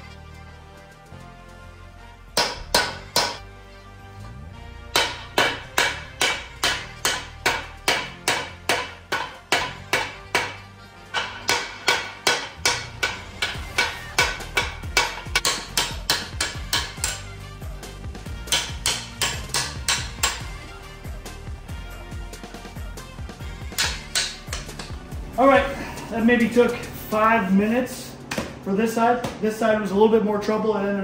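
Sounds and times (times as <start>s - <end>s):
hammer striking metal: 2.4s - 3.4s, 4.9s - 17.4s, 18.4s - 20.5s, 23.6s - 25.0s.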